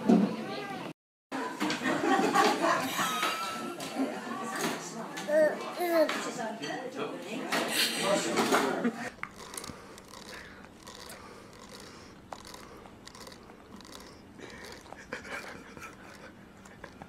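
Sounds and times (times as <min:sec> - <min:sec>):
baby sucking wet mouth sounds: 0:09.1 - 0:17.0.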